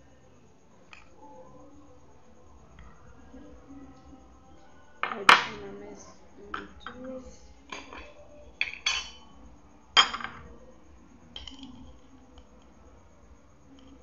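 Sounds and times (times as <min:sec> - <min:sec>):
metal spoon clinking on glass: 0:07.7 - 0:09.3.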